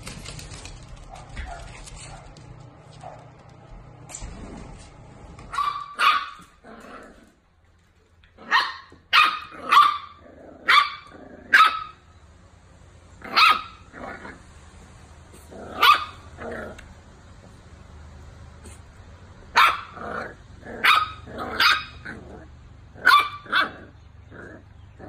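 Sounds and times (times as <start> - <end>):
puppies barking: 5.4 - 7.1, 8.4 - 12.1, 13.2 - 14.5, 15.4 - 16.9, 19.5 - 25.0.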